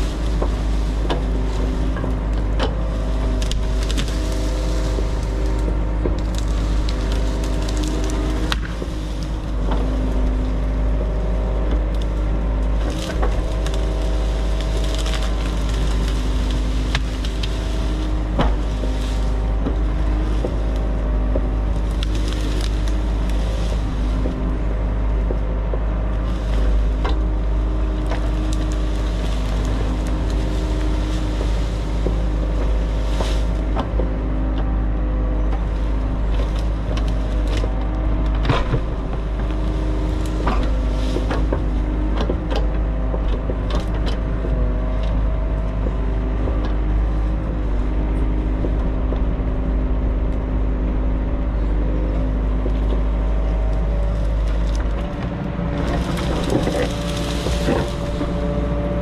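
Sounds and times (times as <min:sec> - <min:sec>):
diesel engine running: 0:00.0 - 0:59.0
wood cracking and breaking: 0:00.0 - 0:59.0.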